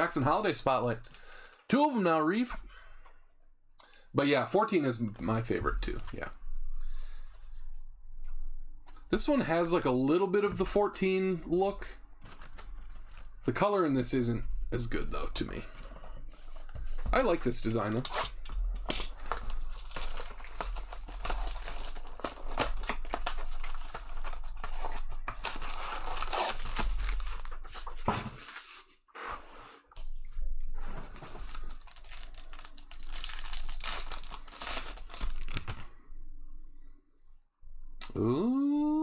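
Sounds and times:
wrappers tearing and crinkling: 0:17.8 - 0:28.6, 0:31.2 - 0:35.9.

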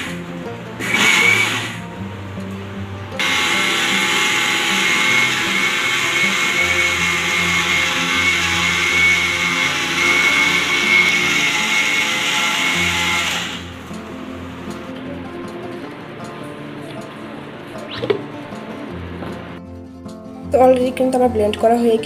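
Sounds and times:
mixer grinder grinding salt: 0:00.0 - 0:00.2, 0:00.8 - 0:01.9, 0:03.2 - 0:13.9.

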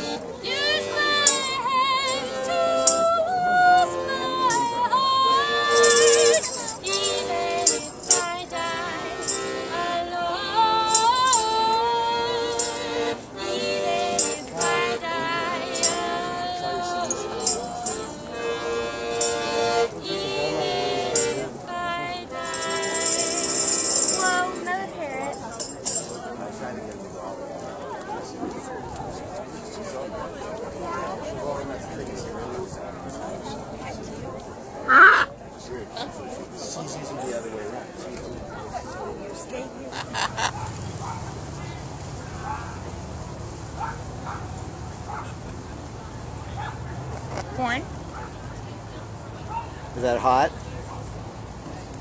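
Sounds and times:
piano accordion chords: 0:00.0 - 0:24.9
woman singing with vibrato: 0:00.3 - 0:19.1, 0:20.0 - 0:25.3
tambourine jingling: 0:05.7 - 0:08.4, 0:17.1 - 0:18.2, 0:22.4 - 0:24.4, 0:25.2 - 0:26.2.

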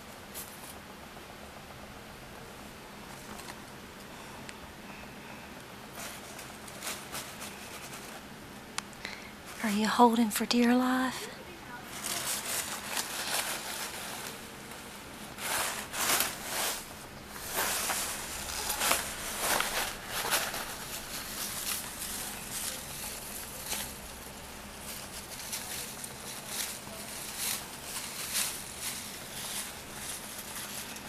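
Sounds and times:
toy rustling and crinkling: 0:11.9 - 0:31.0.

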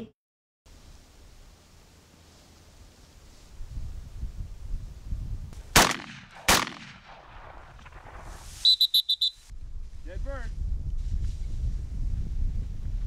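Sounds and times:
shotgun shots with echo: 0:05.7 - 0:08.4
short high pips: 0:08.5 - 0:09.5.

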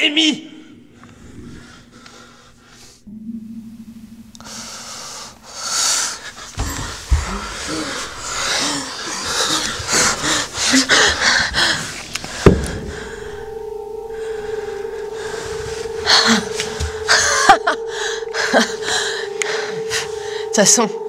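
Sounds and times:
low hum: 0:00.4 - 0:21.0
woman gasping and wheezing: 0:05.7 - 0:13.5.

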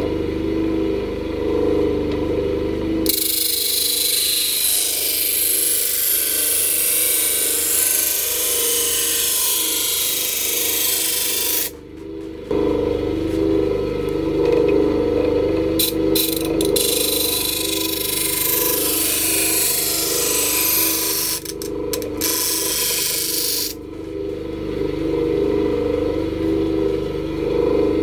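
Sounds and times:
bench grinder motor humming: 0:00.0 - 0:28.0
knife blade grinding on wheel: 0:03.0 - 0:11.8, 0:14.4 - 0:23.8.

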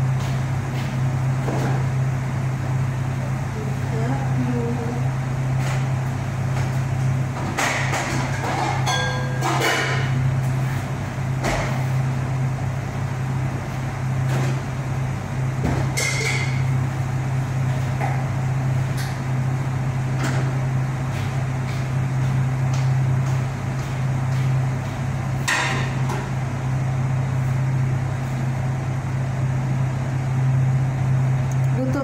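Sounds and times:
steady low hum: 0:00.0 - 0:32.0
pots and dishes clinking: 0:07.7 - 0:10.2, 0:15.9 - 0:16.7.

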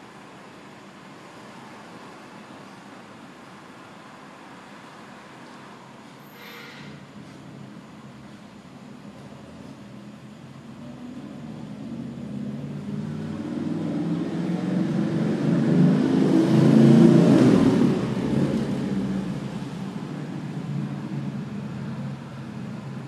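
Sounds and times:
motor vehicle passing by: 0:10.6 - 0:23.0.

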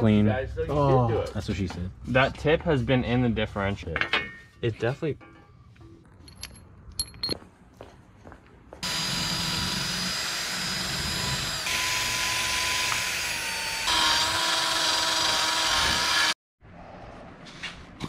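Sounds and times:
drill wire brush grinding metal: 0:08.8 - 0:16.4.

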